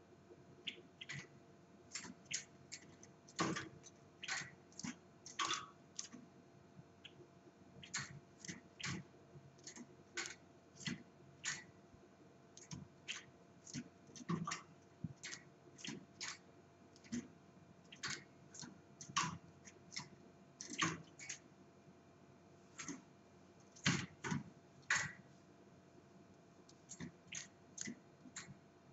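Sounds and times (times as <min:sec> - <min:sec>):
clicking on metal cage bars: 0:01.9 - 0:06.2, 0:07.8 - 0:11.7, 0:12.6 - 0:17.3, 0:17.9 - 0:21.4, 0:23.6 - 0:25.3, 0:26.7 - 0:28.6.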